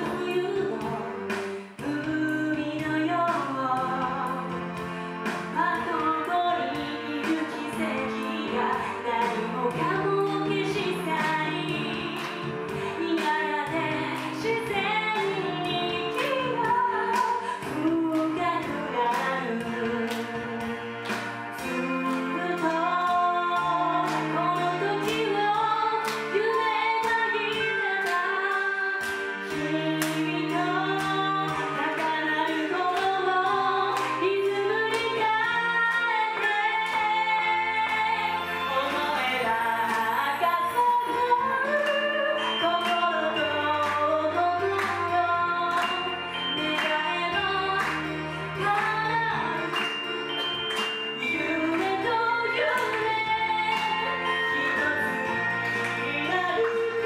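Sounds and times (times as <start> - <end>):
children singing a pop song: 0.0 - 4.6, 5.3 - 57.0
backing track with drum beat: 0.0 - 34.2.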